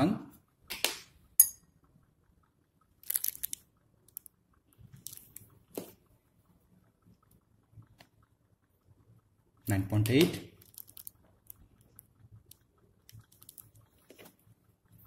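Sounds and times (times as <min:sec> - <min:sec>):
glassware clicking and tapping: 0:01.4 - 0:01.7.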